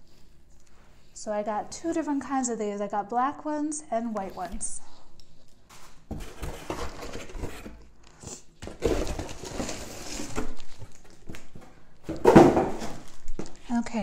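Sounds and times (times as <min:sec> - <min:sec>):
cardboard and packing rustling: 0:05.5 - 0:08.0, 0:08.6 - 0:13.8.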